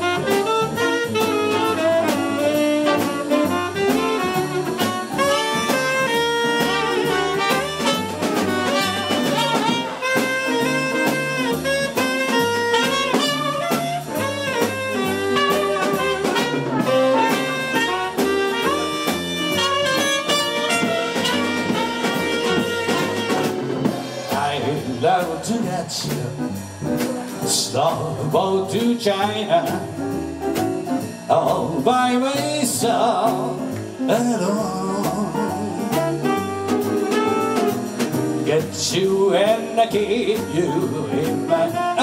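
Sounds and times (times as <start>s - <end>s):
tenor saxophone solo: 0.0s - 23.8s, 35.3s - 38.4s, 40.3s - 42.0s
trumpet solo: 0.0s - 23.9s, 35.1s - 38.0s, 40.2s - 42.0s
drum kit: 0.0s - 42.0s
jazz big band playing swing: 0.0s - 42.0s.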